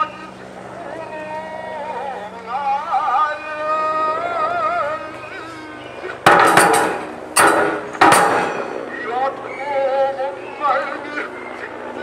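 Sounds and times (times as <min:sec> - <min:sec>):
drum and cymbal strikes: 0:06.3 - 0:08.9.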